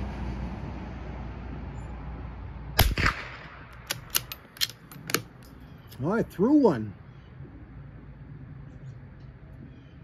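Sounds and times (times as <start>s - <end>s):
rifle shot: 2.8s - 4.4s
rifle bolt metallic clicks: 2.8s - 6.0s.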